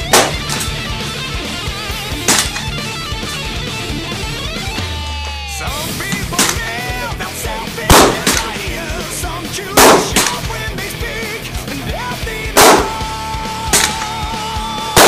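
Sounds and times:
rifle shots with echo: 0:00.0 - 0:00.7, 0:02.3 - 0:02.7, 0:06.2 - 0:06.9, 0:07.8 - 0:08.7, 0:09.8 - 0:10.5, 0:12.6 - 0:13.0, 0:13.7 - 0:14.1
heavy metal music: 0:00.0 - 0:15.0.

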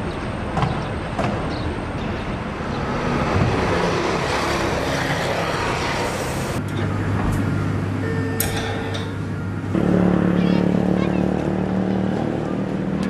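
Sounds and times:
road traffic rumble: 0:00.0 - 0:13.0
low hum: 0:07.8 - 0:12.8.

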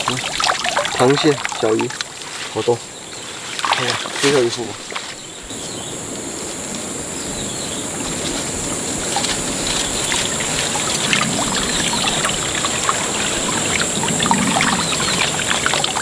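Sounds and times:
water draining from netting: 0:00.0 - 0:05.0, 0:09.0 - 0:16.0
water splashing and trickling: 0:00.0 - 0:05.5, 0:07.9 - 0:16.0.

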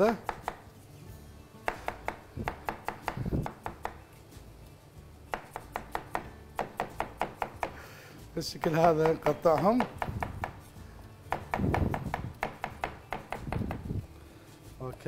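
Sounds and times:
knife chopping on cutting board: 0:00.0 - 0:00.7, 0:01.6 - 0:04.0, 0:05.3 - 0:07.8, 0:08.5 - 0:10.7, 0:11.3 - 0:13.9.

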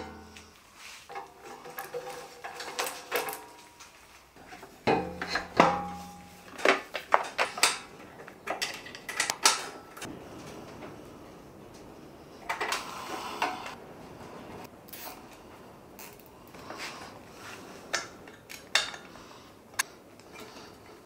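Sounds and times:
loud ringing metal clank: 0:00.0 - 0:00.6.

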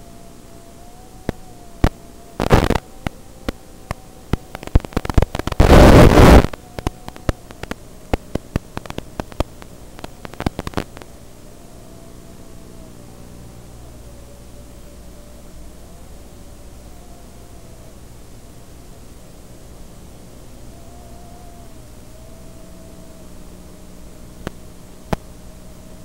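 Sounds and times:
faint steady hum: 0:00.0 - 0:26.0
radio static hiss: 0:00.0 - 0:26.0
static crackles: 0:00.0 - 0:26.0
bursts of loud noise: 0:01.8 - 0:03.2, 0:04.0 - 0:11.2.

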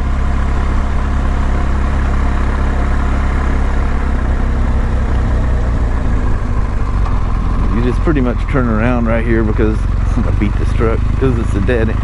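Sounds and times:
motorcycle engine running: 0:00.0 - 0:12.0
wind and road noise: 0:00.0 - 0:12.0.

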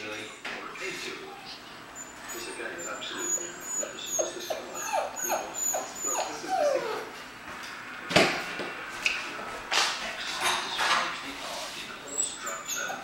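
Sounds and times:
puppy whimpering: 0:01.2 - 0:07.2, 0:12.1 - 0:13.0.

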